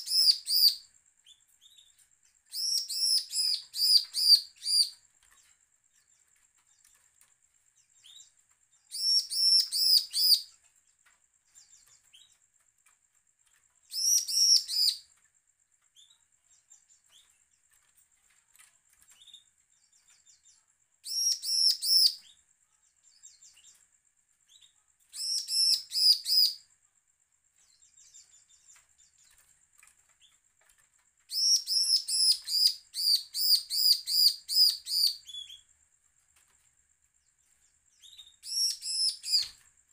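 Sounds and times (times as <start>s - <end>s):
soft single bird chirps: 0.0s - 5.0s, 8.9s - 10.6s, 13.9s - 15.1s, 19.1s - 22.4s, 24.5s - 26.7s, 31.3s - 35.7s, 38.0s - 39.6s
bird rapid high calls: 2.5s - 5.0s, 8.9s - 10.5s, 13.9s - 15.0s, 21.1s - 22.3s, 25.2s - 26.6s, 31.3s - 35.6s, 38.1s - 39.6s.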